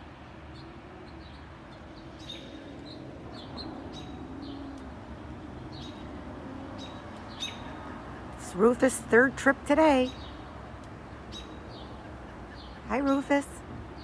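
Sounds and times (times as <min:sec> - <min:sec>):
small birds chirping: 0:00.3 - 0:14.0.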